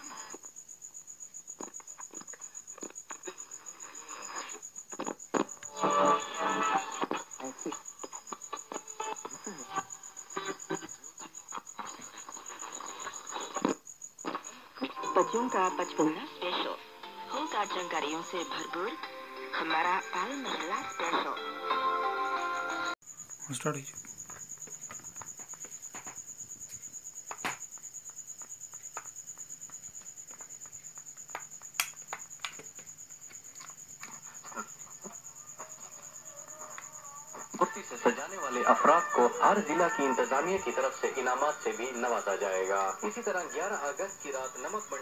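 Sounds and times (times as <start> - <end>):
cricket chirping: 0.0 - 45.0
radio broadcast fragments: 37.6 - 45.0.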